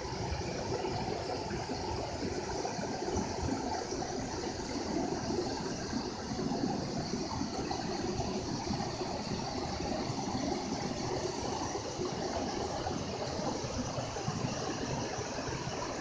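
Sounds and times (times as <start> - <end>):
river water rushing: 0.1 - 16.0.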